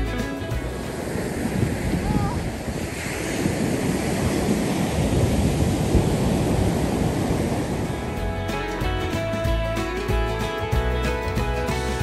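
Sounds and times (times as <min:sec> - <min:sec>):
ocean surf washing onto beach: 0:00.0 - 0:12.0
wind buffeting microphone: 0:00.4 - 0:09.8.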